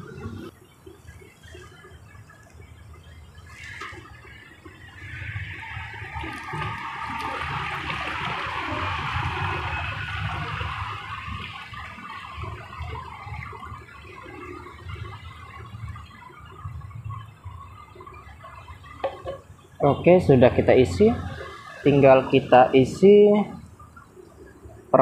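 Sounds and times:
water gurgling in bottle: 1.4s - 24.0s
water pouring into bottle: 5.4s - 11.8s.

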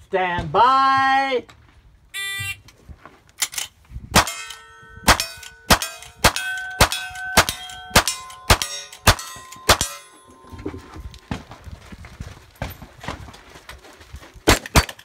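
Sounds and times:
rifle gunshots: 4.2s - 10.0s
steel plate ringing: 4.2s - 11.3s.

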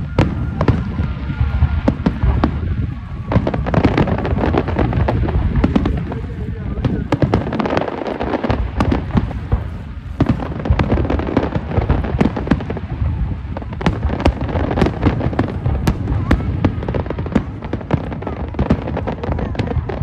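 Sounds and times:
firework bangs and crackles: 0.0s - 20.0s.

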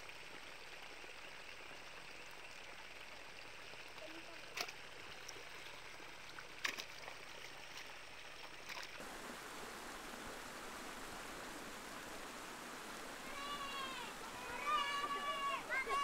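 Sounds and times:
water trickling: 0.0s - 16.0s
rocky stream rushing: 4.7s - 16.0s.

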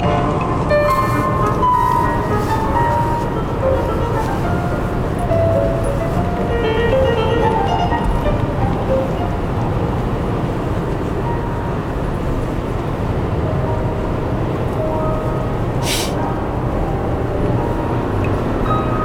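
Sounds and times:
car cabin road and engine noise: 0.0s - 19.0s
brief hiss: 15.8s - 16.2s.

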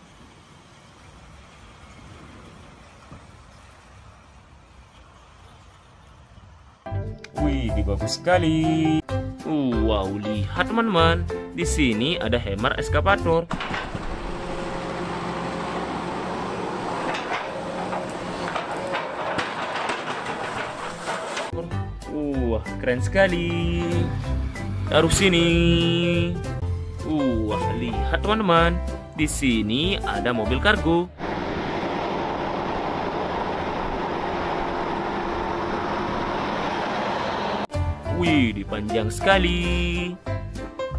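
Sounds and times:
heavy truck driving on road: 0.0s - 7.0s, 13.5s - 21.6s, 31.1s - 38.2s
excavator diesel engine humming: 13.5s - 21.5s, 31.1s - 37.7s
knocks and clanks: 13.5s - 21.6s.

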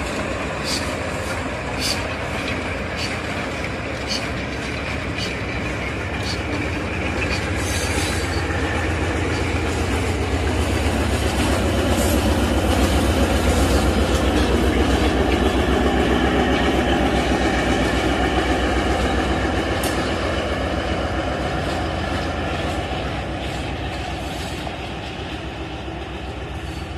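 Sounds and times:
train wheels clattering on rails: 0.0s - 26.9s.

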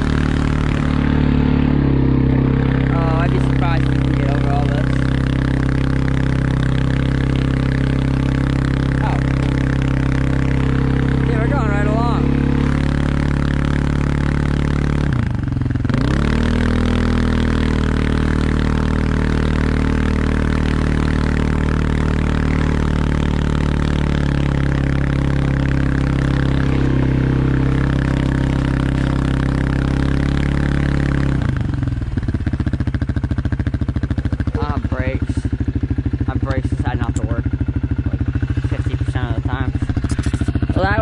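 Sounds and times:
dirt bike engine revving: 0.0s - 41.0s.

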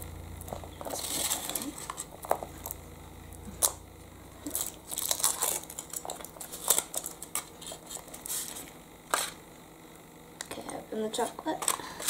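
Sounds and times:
foil wrapper crinkling: 4.4s - 9.4s.

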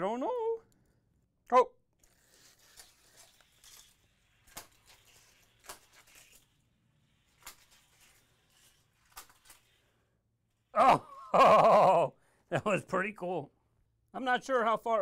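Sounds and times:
toy car clicking on plastic track: 2.0s - 9.8s.

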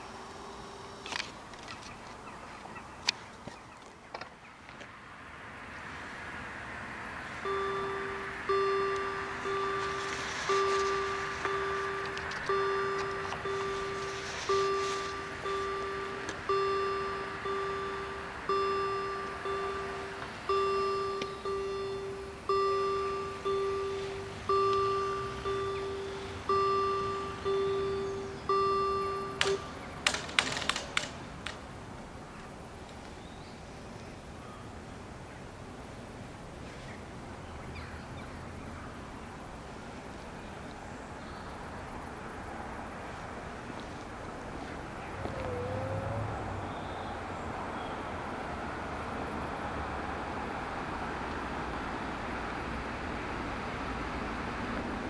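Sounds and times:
outdoor background rumble: 0.0s - 55.0s
faint high chirps: 7.4s - 30.0s
level crossing warning bell ringing: 7.4s - 30.0s.

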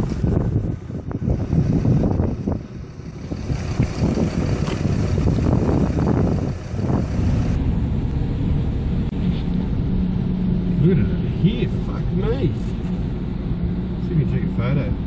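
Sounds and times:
wind buffeting microphone: 0.0s - 10.8s
car engine running: 0.0s - 15.0s
road noise inside moving car: 0.0s - 15.0s.

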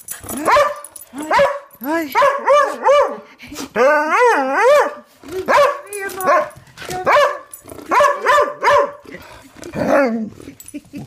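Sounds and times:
dog barking: 0.4s - 3.2s, 4.6s - 9.0s.

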